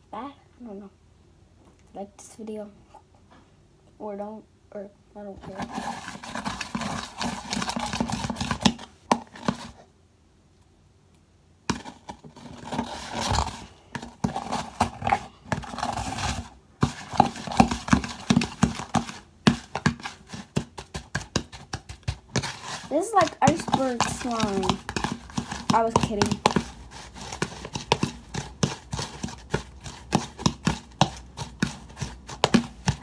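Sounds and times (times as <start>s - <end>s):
metal spoon stirring slime: 5.4s - 9.8s, 11.7s - 33.0s.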